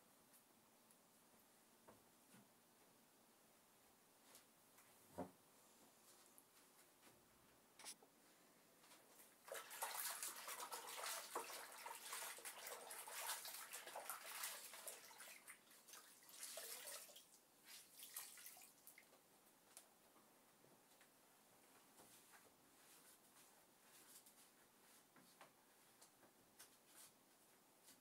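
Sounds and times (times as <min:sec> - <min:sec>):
water splashing and dripping: 0:09.4 - 0:19.2.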